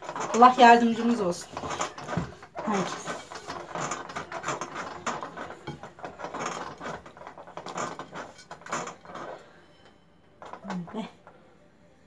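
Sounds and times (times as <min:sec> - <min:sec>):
hands kneading dough: 0:00.0 - 0:09.4.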